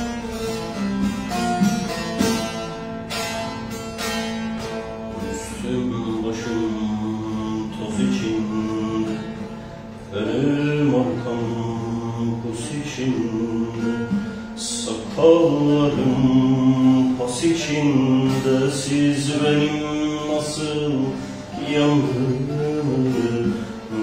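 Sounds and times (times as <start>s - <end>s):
plucked long-necked lute: 0.0s - 24.0s
man singing: 5.1s - 24.0s.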